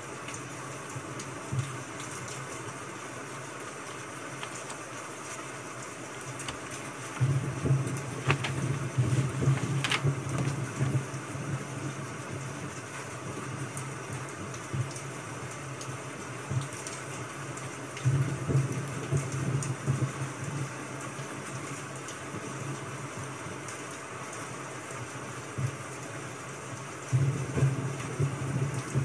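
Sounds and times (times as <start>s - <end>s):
steady hiss: 0.5s - 12.0s
pages flipping: 3.7s - 11.0s
sharp paper snaps: 3.9s - 5.4s, 6.2s - 11.0s
handling bumps: 6.3s - 7.4s, 8.0s - 11.0s.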